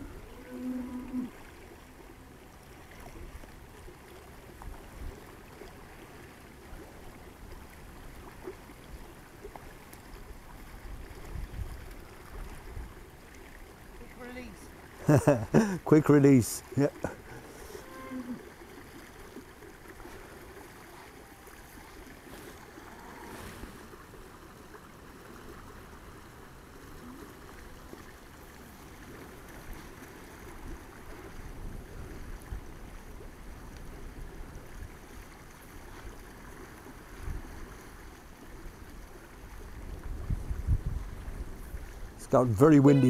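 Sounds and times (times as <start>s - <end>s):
wind buffeting the microphone: 10.7s - 13.0s, 39.5s - 42.4s
fast-flowing river rushing: 12.0s - 31.4s.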